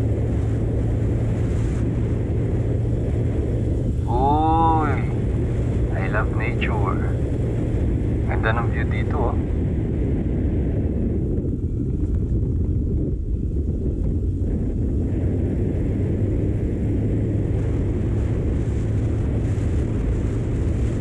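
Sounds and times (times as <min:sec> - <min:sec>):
motorcycle engine droning: 0:00.0 - 0:21.0
wind rushing over microphone: 0:00.0 - 0:21.0.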